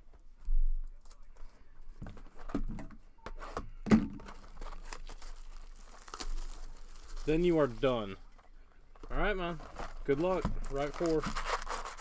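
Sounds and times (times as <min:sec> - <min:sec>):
cellophane tearing and crinkling: 0:04.2 - 0:08.2, 0:09.2 - 0:12.0.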